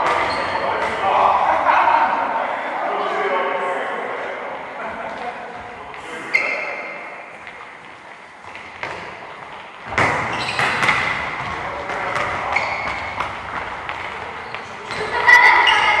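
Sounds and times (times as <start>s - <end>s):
short high squeaks: 6.2s - 7.0s
ball kicked and bouncing: 8.4s - 9.2s, 9.8s - 14.1s.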